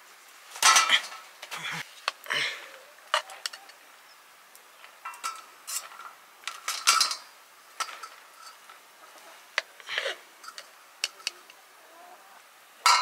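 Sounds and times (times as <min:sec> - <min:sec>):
metal spoon scraping a pot: 0:06.7 - 0:08.7, 0:09.9 - 0:11.5.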